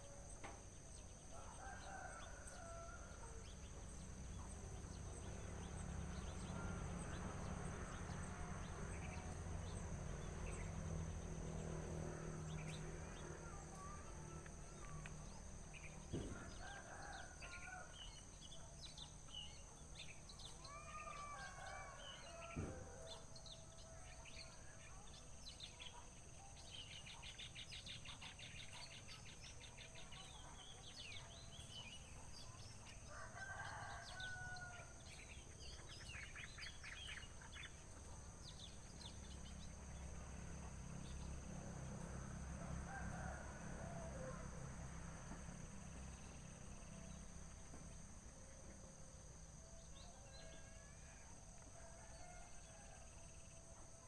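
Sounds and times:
faint rooster crowing: 0:01.2 - 0:10.7, 0:11.3 - 0:25.2, 0:30.0 - 0:37.7, 0:38.5 - 0:54.0
high insect drone: 0:26.8 - 0:54.0.

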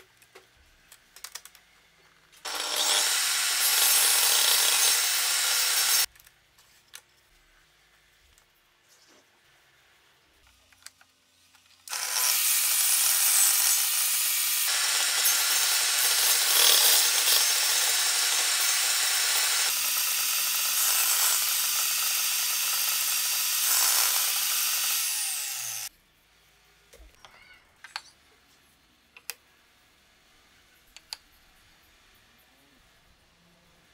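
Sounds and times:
table saw cutting wood: 0:02.4 - 0:06.1, 0:11.9 - 0:25.9.

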